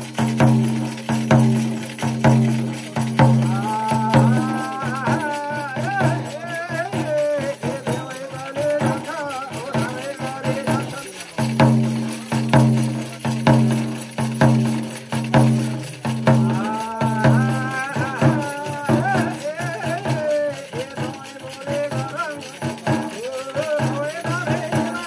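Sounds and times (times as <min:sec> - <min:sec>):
frame drum beaten: 0:00.0 - 0:25.0
jingling bells: 0:00.0 - 0:25.0
person chanting: 0:02.9 - 0:11.4, 0:16.2 - 0:25.0.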